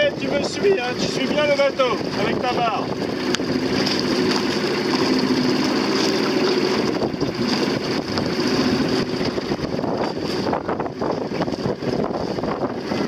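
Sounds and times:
choppy water: 0.0s - 13.0s
motorboat engine humming: 0.0s - 13.0s
wind rushing: 6.6s - 13.0s.

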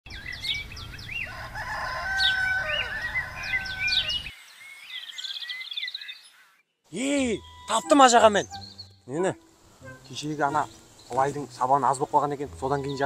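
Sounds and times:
songbirds chirping: 0.1s - 13.0s
rooster crowing: 1.2s - 4.3s.

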